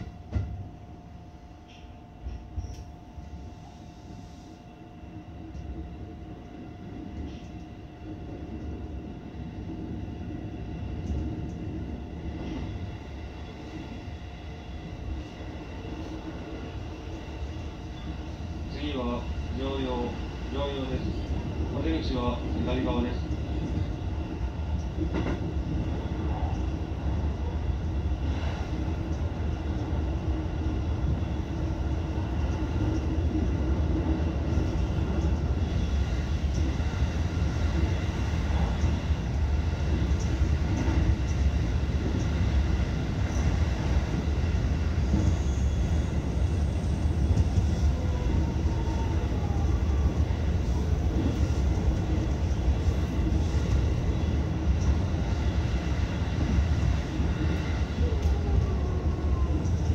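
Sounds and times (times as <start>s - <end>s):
train wheels rumbling on rail: 0.0s - 59.9s
faint clicks over rails: 24.8s - 25.6s, 55.6s - 58.6s.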